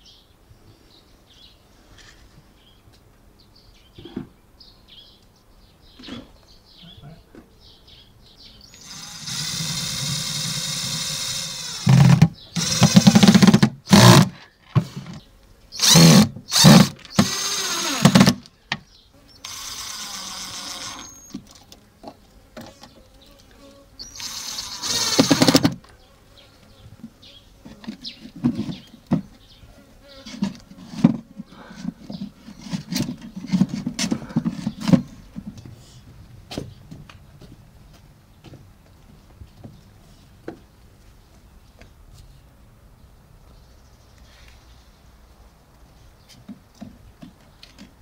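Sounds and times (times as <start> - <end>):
small motor whining: 8.8 - 14.3, 15.8 - 18.4, 19.4 - 21.4, 24.0 - 25.8.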